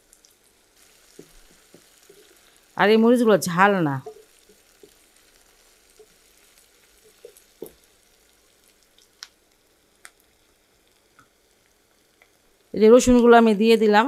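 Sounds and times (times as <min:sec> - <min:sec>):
onions frying in oil: 0:00.0 - 0:14.0
oil pops and ticks: 0:04.0 - 0:05.1, 0:07.0 - 0:07.9, 0:08.6 - 0:12.4.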